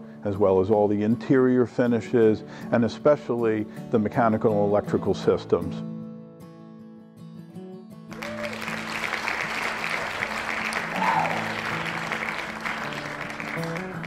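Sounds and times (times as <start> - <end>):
guitar music: 1.0 - 14.0
audience applauding: 8.1 - 14.0.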